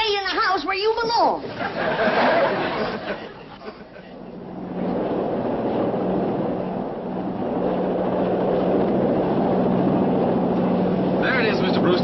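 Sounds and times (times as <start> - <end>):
helicopter engine and rotor: 4.1 - 12.0.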